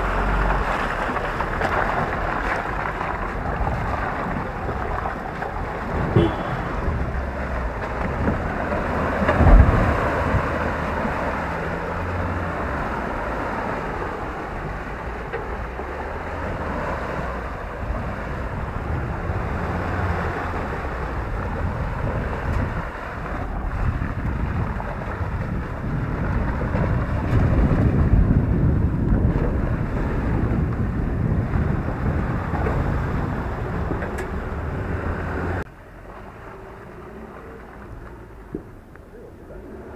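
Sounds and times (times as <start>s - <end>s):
diesel engine pulling at low revs: 0.0s - 39.9s
wind buffeting microphone: 0.0s - 39.9s
heavy thump: 9.3s - 10.2s.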